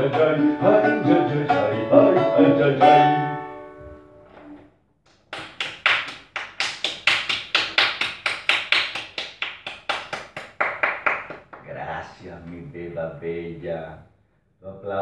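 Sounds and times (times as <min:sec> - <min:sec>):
person clapping: 0:05.1 - 0:11.7.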